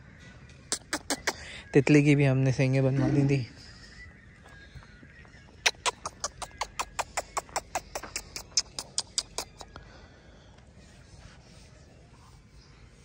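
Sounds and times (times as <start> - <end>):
sharp clicks: 5.6 - 9.8.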